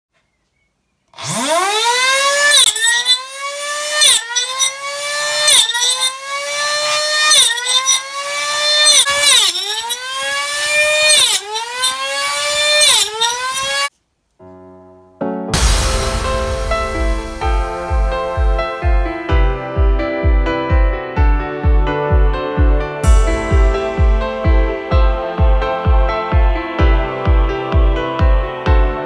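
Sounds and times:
saw blade cutting wood: 1.1 - 13.9
small saw motor whining: 1.1 - 13.9.

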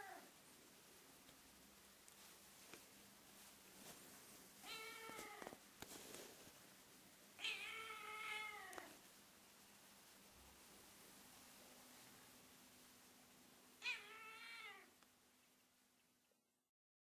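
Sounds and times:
kitten meowing: 4.6 - 5.6, 7.4 - 9.0, 13.8 - 14.9.

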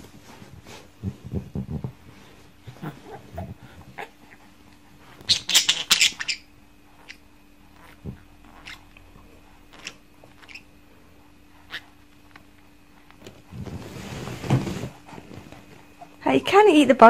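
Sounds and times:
parakeet chirping: 5.2 - 7.2, 7.8 - 9.0, 9.7 - 10.7
parakeet squawking: 5.2 - 7.2, 7.8 - 9.0, 9.7 - 10.7, 11.7 - 12.0.

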